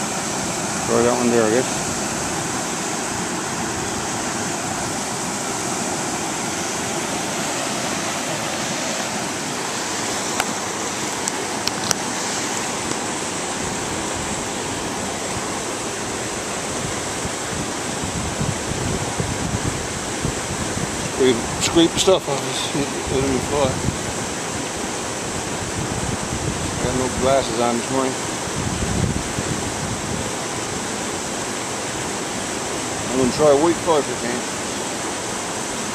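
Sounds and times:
rapids rushing over rocks: 0.0s - 35.9s.

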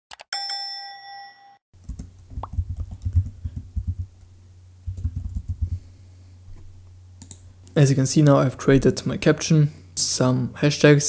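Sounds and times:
rapid keyboard typing: 1.8s - 4.1s, 4.8s - 5.8s.

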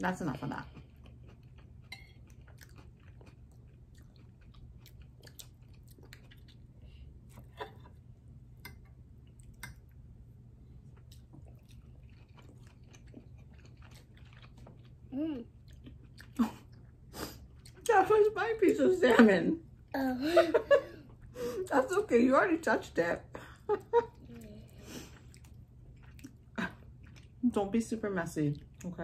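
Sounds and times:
wet chewing and mouth smacks: 0.8s - 7.6s, 10.8s - 17.9s, 25.1s - 27.4s.

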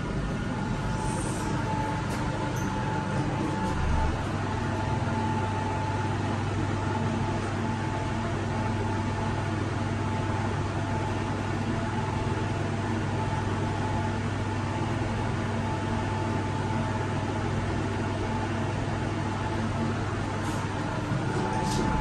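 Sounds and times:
elevator hum and rushing: 0.0s - 7.9s, 19.3s - 22.0s.

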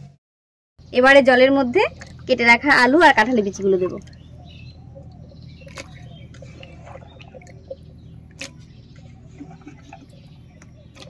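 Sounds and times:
food plopping into water: 5.7s - 7.6s.

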